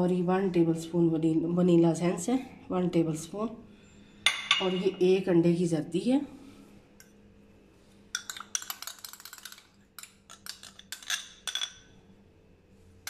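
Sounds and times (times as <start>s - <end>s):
faint steady hum: 0.0s - 13.0s
glass dish clinking on bowl: 4.3s - 4.9s.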